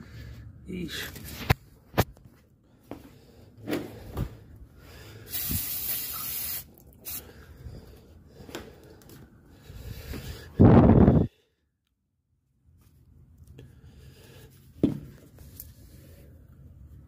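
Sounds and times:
aerosol can spraying: 0:05.3 - 0:07.2.

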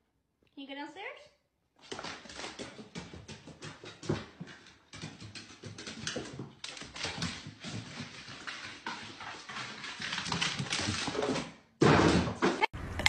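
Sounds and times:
dog claws tapping on wooden stairs: 0:01.8 - 0:12.2.

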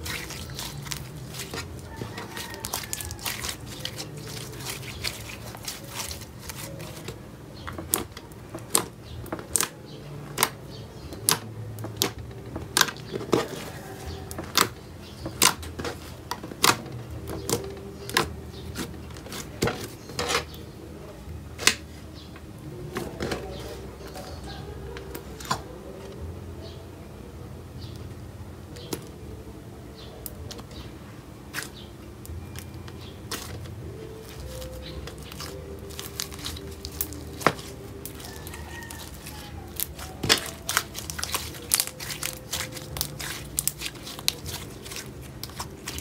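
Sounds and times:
slime clicking and popping: 0:00.0 - 0:10.6, 0:34.3 - 0:46.0.

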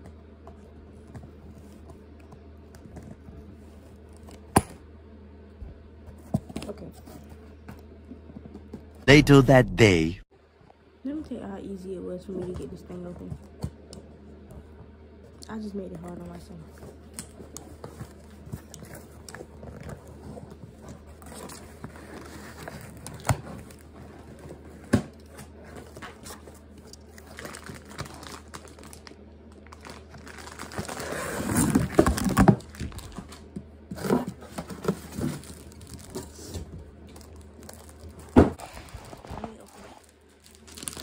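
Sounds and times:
cardboard tearing and crinkling: 0:38.7 - 0:41.0.

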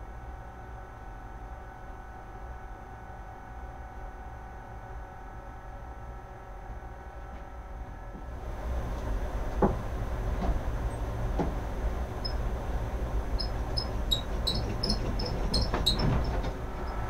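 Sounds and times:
steady low hum: 0:00.0 - 0:17.0
short high squeaks: 0:13.4 - 0:17.0.

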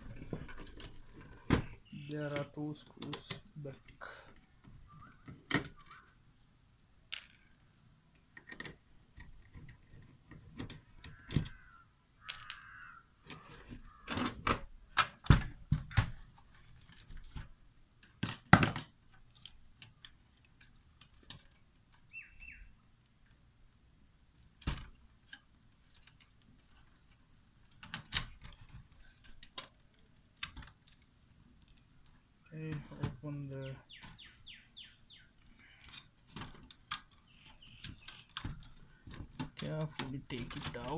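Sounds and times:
clicks and knocks of metal case: 0:00.0 - 0:06.1, 0:08.3 - 0:22.0, 0:35.5 - 0:40.9.

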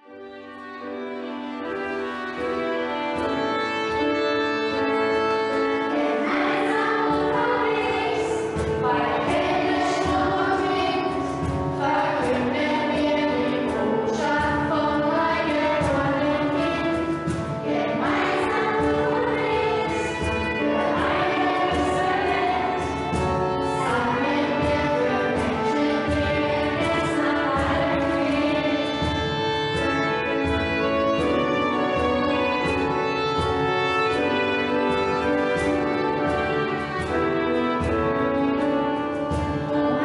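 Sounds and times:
choir singing: 0:05.8 - 0:31.4.

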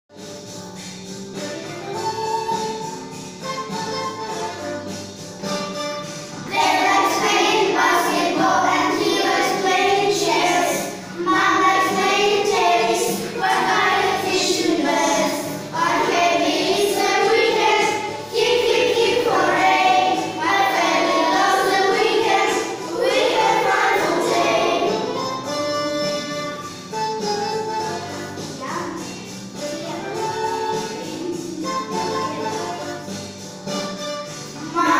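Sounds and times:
instrumental backing music: 0:00.1 - 0:34.9
choir singing: 0:06.4 - 0:25.4.

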